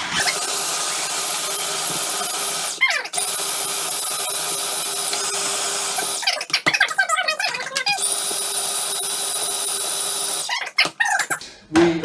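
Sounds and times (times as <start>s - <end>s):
food processor motor whining: 0.0s - 6.3s, 7.8s - 10.5s.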